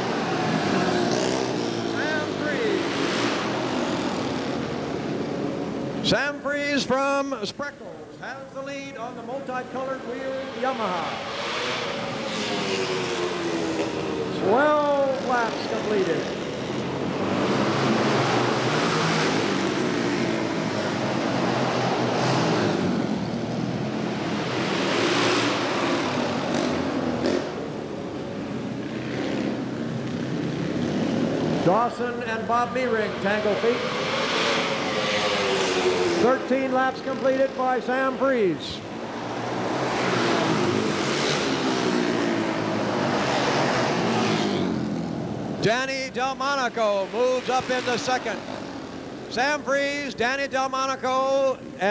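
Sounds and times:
motorcycle engines racing: 0.0s - 51.9s.

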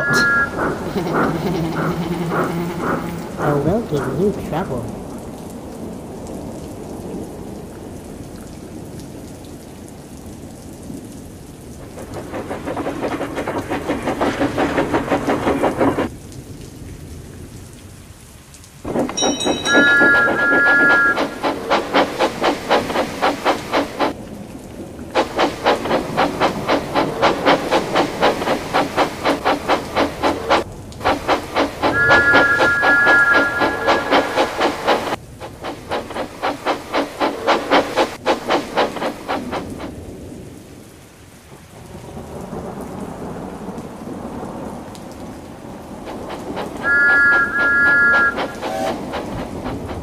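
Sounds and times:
steam locomotive whistle: 0.0s - 3.7s, 19.1s - 22.0s, 31.8s - 35.2s, 46.6s - 49.6s
steam engine puffing clatter: 0.0s - 4.4s, 11.8s - 16.1s, 18.9s - 24.2s, 25.2s - 40.0s, 46.1s - 50.0s
heavy rain falling: 0.0s - 50.0s.

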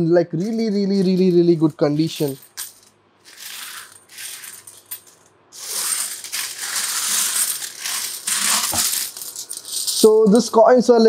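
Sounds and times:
coins jingling on a table: 0.4s - 10.2s.

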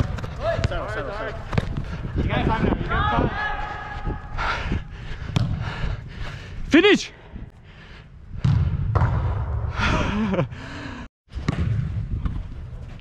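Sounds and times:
microphone rubbing and rumble: 1.4s - 2.9s.

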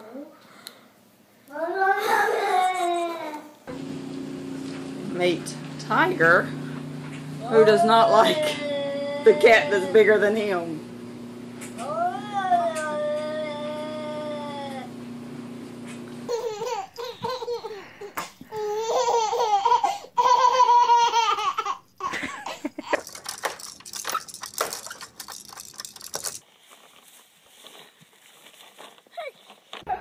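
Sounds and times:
baby laughing: 16.3s - 25.0s.

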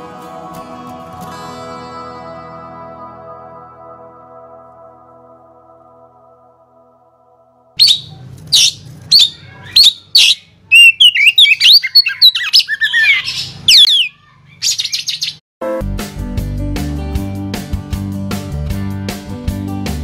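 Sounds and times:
strummed guitar music: 0.0s - 3.5s
birds chirping: 7.8s - 15.4s.

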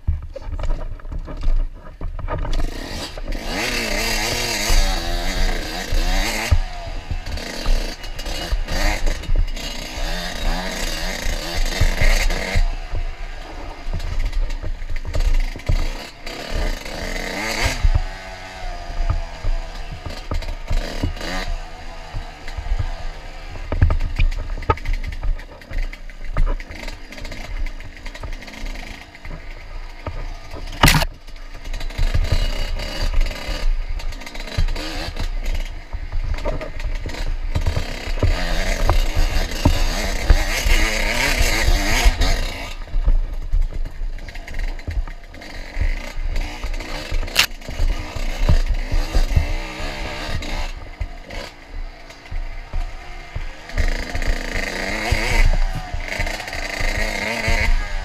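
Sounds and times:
dirt bike engine revving: 0.0s - 58.0s
sharp knocks: 30.0s - 31.2s.

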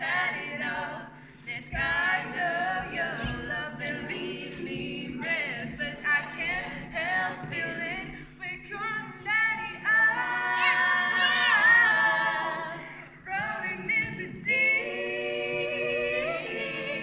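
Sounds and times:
group singing a cappella: 0.0s - 17.0s.

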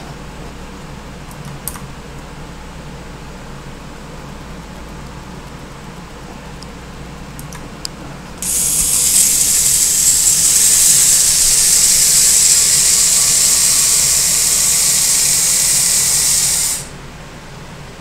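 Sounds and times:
high-pitched hiss: 8.4s - 17.0s.

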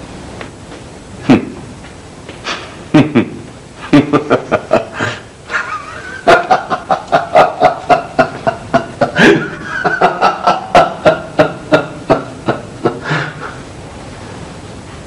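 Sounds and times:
man laughing loudly: 2.9s - 13.6s.

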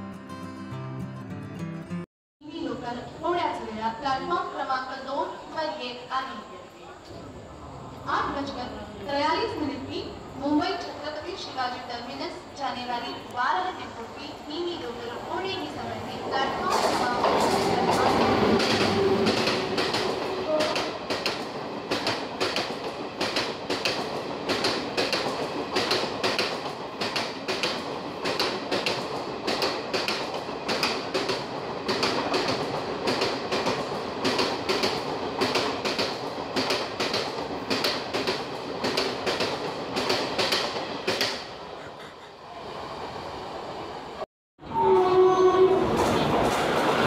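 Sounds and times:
train rumble: 7.2s - 44.2s, 44.8s - 47.0s
train wheels clattering: 16.5s - 42.0s.

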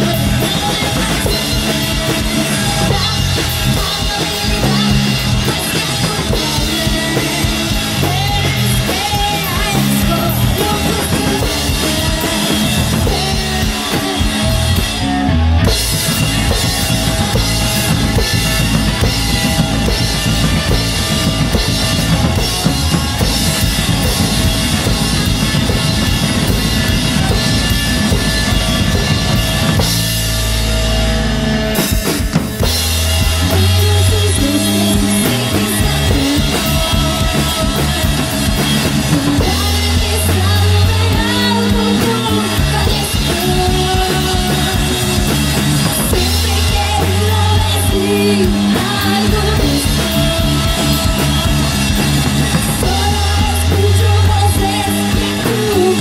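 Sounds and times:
woman singing: 0.0s - 14.8s, 33.4s - 56.0s
rock band playing: 0.0s - 56.0s.

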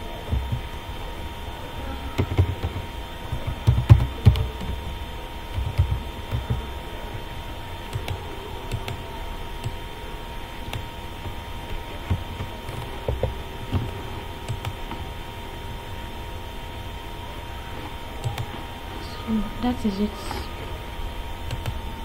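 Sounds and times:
electrical hum: 0.0s - 22.0s
faint whine: 0.0s - 22.0s
keyboard typing: 2.2s - 4.9s, 5.5s - 7.2s, 7.8s - 9.0s, 10.6s - 15.1s, 17.8s - 19.1s, 21.4s - 21.8s.

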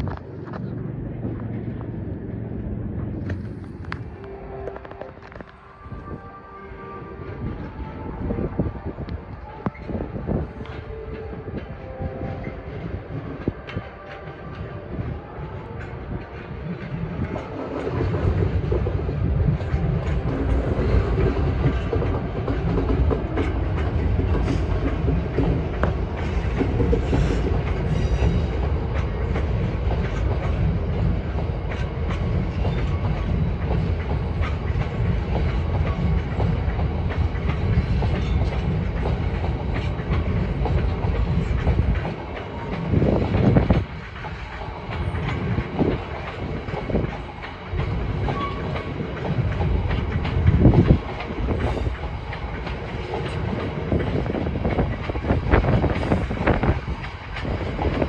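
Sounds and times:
train wheels clattering over rail joints: 15.6s - 58.0s.

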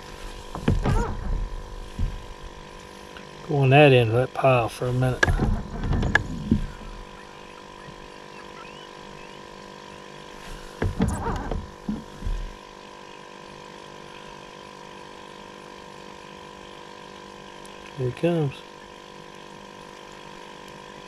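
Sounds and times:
electric hum: 0.0s - 21.0s
muffled bumps and knocks: 0.1s - 2.5s, 5.1s - 7.1s, 10.5s - 12.6s.

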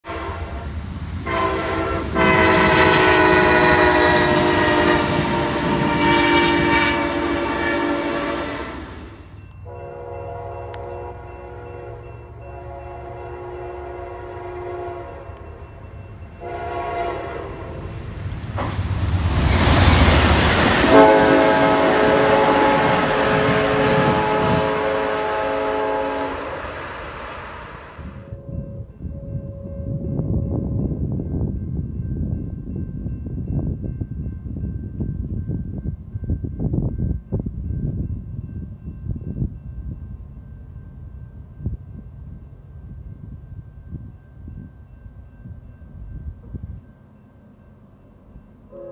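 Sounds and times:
train horn chords: 0.0s - 15.6s, 16.4s - 18.0s, 20.5s - 30.2s, 48.7s - 48.9s
train passing with rush: 0.0s - 48.9s.

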